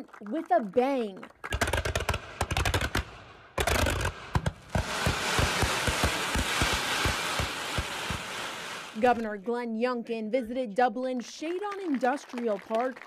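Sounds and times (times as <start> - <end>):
fireworks bangs and crackle: 1.5 - 9.3.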